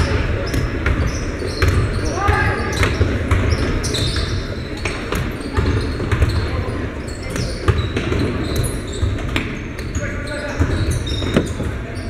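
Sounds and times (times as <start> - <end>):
crowd and player noise: 0.0 - 12.0
basketball bouncing on hardwood: 0.5 - 6.4.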